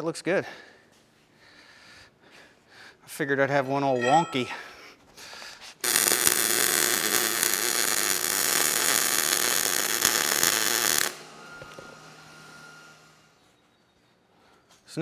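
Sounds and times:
welding arc crackling: 0:05.8 - 0:11.8.

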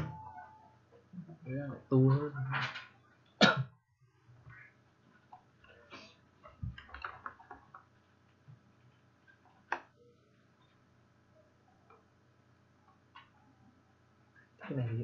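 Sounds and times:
faint clicks and light knocks: 0:04.5 - 0:10.0.

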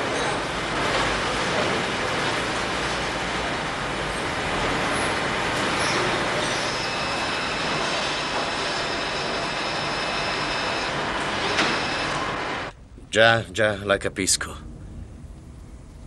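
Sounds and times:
machine tools running: 0:00.0 - 0:12.8
faint high whines: 0:05.1 - 0:16.0.

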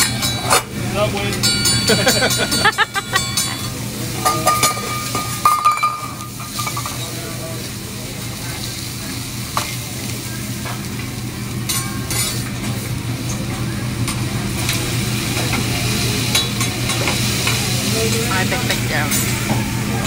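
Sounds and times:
vegetables sizzling on griddle: 0:00.0 - 0:20.0.

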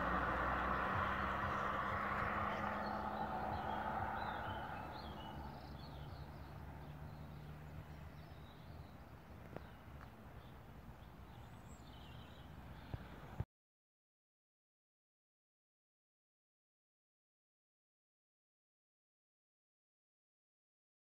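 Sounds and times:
birds chirping: 0:00.0 - 0:13.4
passing vehicle hum: 0:00.0 - 0:13.4.

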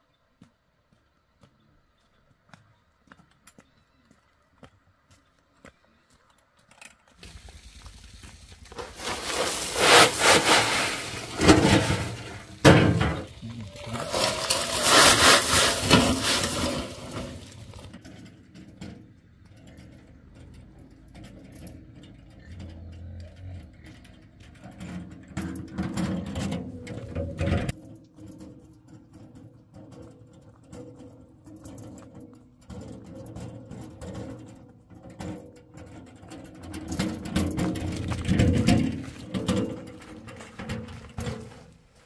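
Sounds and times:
gravel pouring from wheelbarrow: 0:07.2 - 0:18.0, 0:36.8 - 0:41.8.

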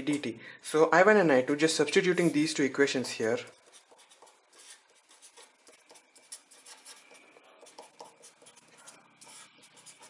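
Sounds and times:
pen scratching on paper: 0:03.2 - 0:10.0.

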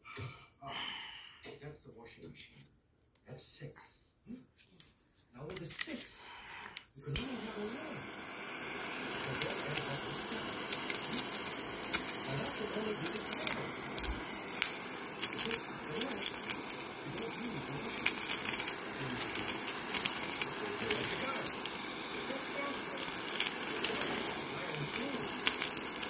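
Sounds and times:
small crackles: 0:04.6 - 0:26.0
kitchen torch hissing: 0:05.5 - 0:26.0.

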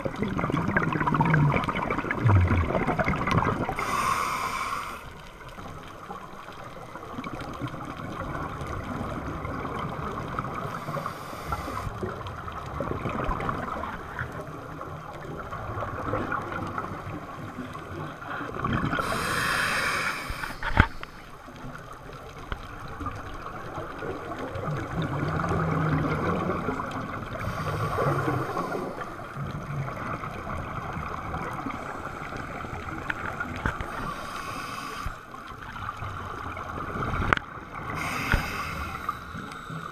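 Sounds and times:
scuba regulator bubble bursts: 0:00.0 - 0:04.0
muffled water noise: 0:00.0 - 0:39.9.

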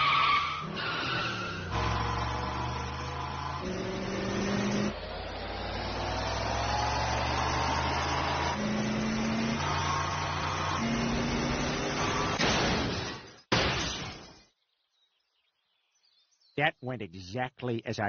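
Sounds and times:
limousine engines accelerating: 0:00.0 - 0:12.4.

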